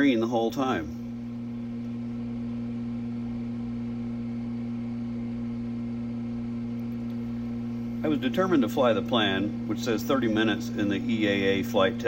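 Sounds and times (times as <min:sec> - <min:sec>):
light aircraft engine droning: 0:06.8 - 0:12.0.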